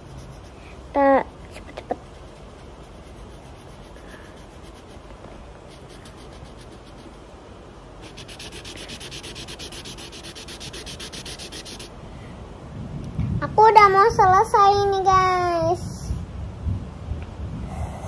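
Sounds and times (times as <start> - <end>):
pen scribbling on paper: 0.0 - 0.6, 1.5 - 5.1, 5.7 - 7.2, 8.0 - 11.9.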